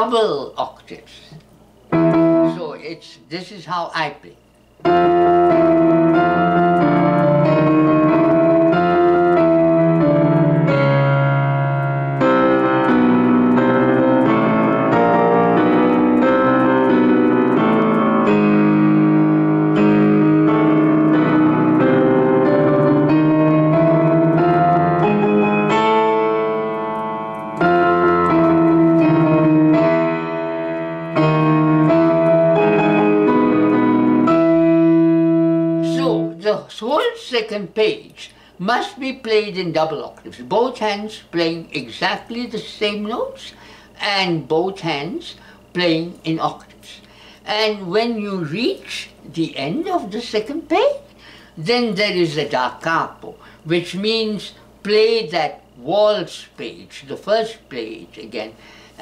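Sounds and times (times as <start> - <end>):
digital piano playing octaves: 1.9 - 3.0, 4.8 - 38.0.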